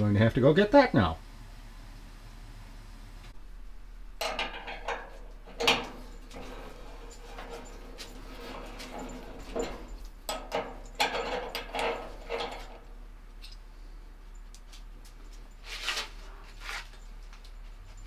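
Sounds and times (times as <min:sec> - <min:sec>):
metal clicking and rattling: 0:04.2 - 0:13.6.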